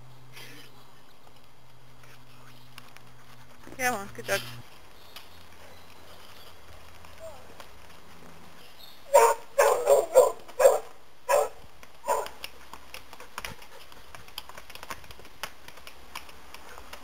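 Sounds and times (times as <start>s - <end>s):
hooves clicking on stone steps: 1.1s - 17.0s
dog barking: 9.1s - 12.4s.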